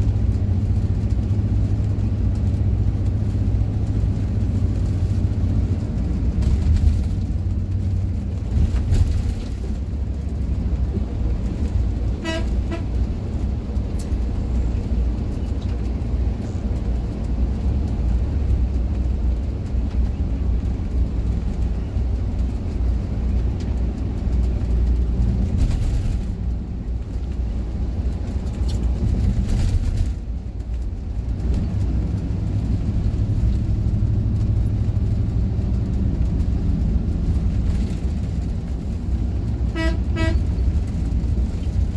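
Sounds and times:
bus rumbling: 0.0 - 41.9
vehicle horn toot: 12.2 - 12.9, 39.7 - 40.5.

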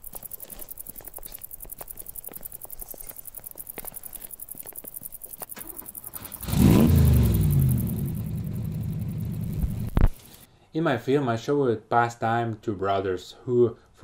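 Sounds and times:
engine revving then running: 6.1 - 10.4.

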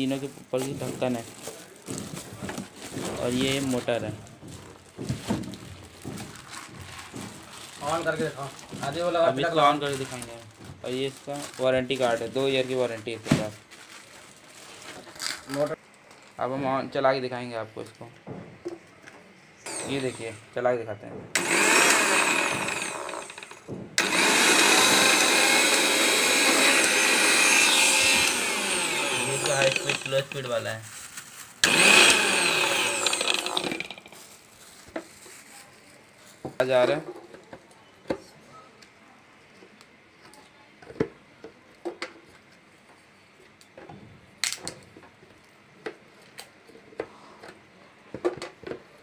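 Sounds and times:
mixer grinder motor running: 19.7 - 20.4, 21.4 - 30.5, 31.6 - 34.2.

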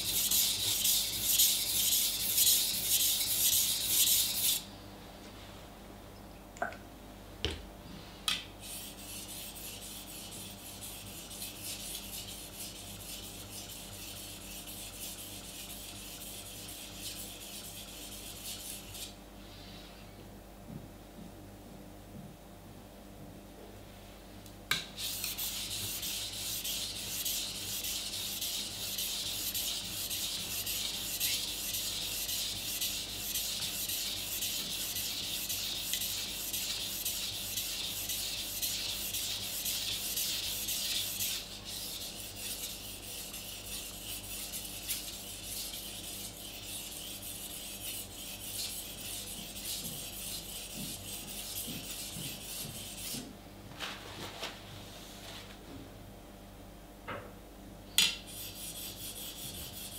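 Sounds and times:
knife scraping on whetstone: 25.0 - 53.2.

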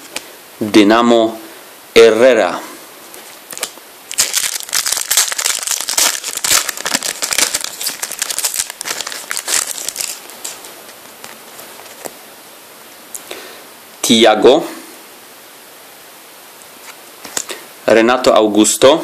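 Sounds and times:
foil wrapper crinkling: 3.5 - 12.2.

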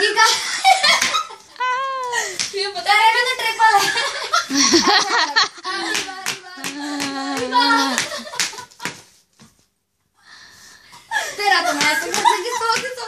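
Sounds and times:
women exclaiming and laughing: 0.0 - 8.8, 11.1 - 13.0
hand claps: 0.9 - 1.3, 2.0 - 2.6, 5.8 - 9.2, 11.6 - 13.0.

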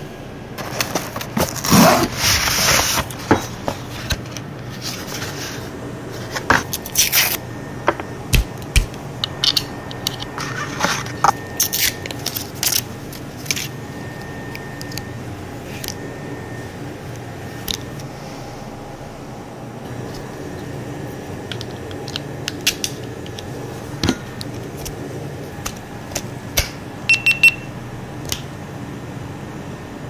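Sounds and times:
cardboard packaging rustling: 0.6 - 7.4, 10.2 - 13.8.

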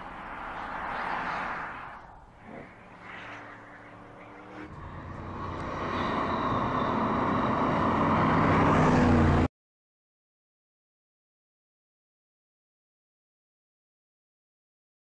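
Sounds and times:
car engine approaching: 0.0 - 9.5.

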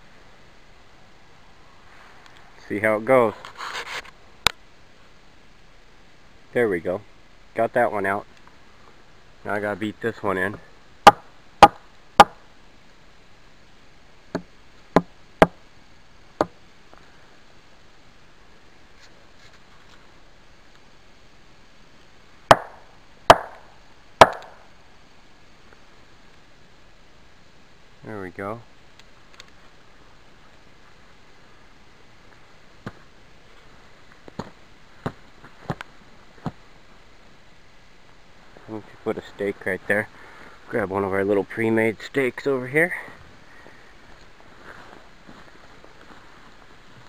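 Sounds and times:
sharp wooden knocks: 11.1 - 12.4, 22.5 - 23.6, 24.2 - 24.6
boot kicking wooden pole: 22.5 - 23.6.

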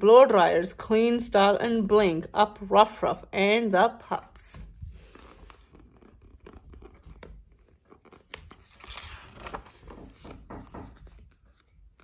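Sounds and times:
book page turning: 4.9 - 12.0.

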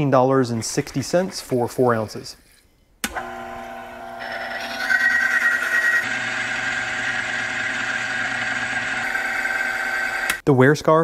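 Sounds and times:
electric motor hum: 3.0 - 10.4.

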